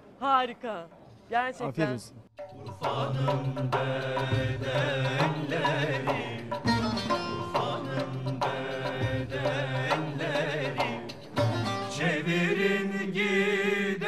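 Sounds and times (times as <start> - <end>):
percussion strikes: 2.4 - 12.2
plucked instrumental melody: 6.6 - 8.0.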